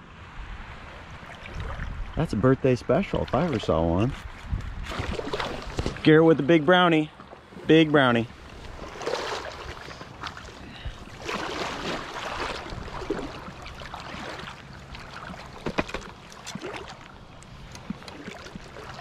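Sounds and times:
stream water running: 0:00.1 - 0:19.0
fish splashing: 0:04.9 - 0:06.1, 0:08.3 - 0:19.0.

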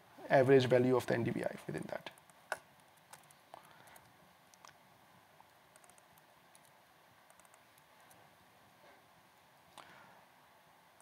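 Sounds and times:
laptop keyboard clicks: 0:05.8 - 0:07.6.

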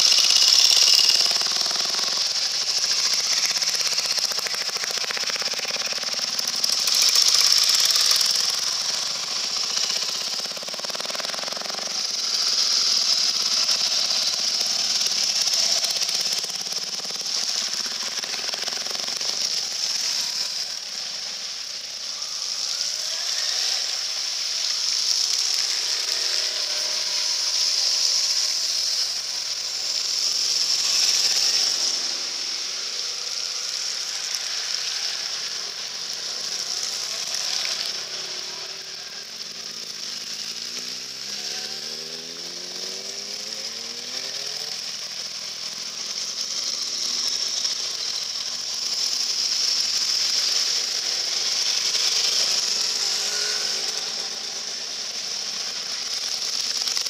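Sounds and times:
motorcycle engines revving: 0:00.0 - 0:57.0.

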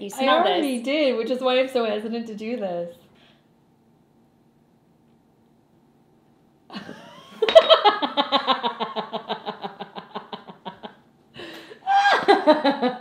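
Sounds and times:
woman laughing hard: 0:06.7 - 0:13.0
woman breathing in: 0:11.3 - 0:11.9.

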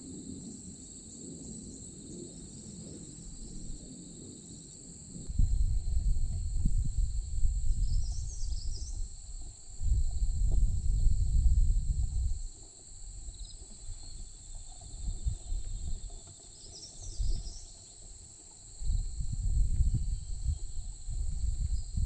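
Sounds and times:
high insect drone: 0:00.0 - 0:22.0
low rumbling on microphone: 0:03.0 - 0:03.9, 0:05.0 - 0:17.8, 0:18.7 - 0:22.0.

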